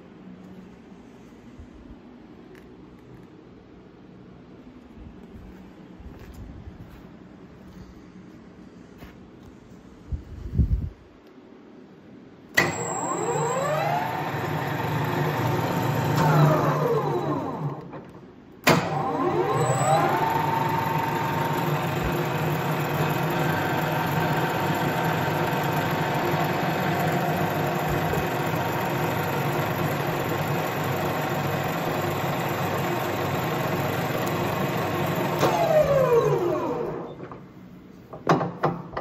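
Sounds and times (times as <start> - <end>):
lathe motor whining: 12.6 - 37.4
lathe switch clunk: 17.7 - 19.2.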